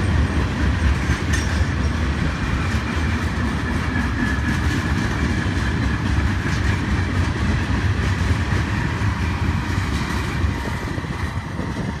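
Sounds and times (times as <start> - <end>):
train wheels rumbling on rails: 0.0 - 12.0
faint rail clicks: 0.9 - 2.1.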